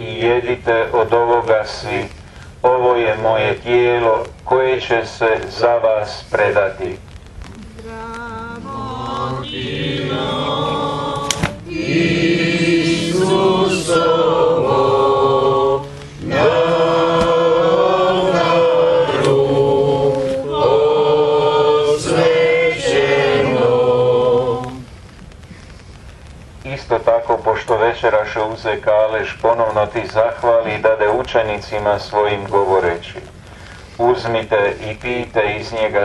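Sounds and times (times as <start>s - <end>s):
group singing a slow hymn: 7.5s - 25.4s.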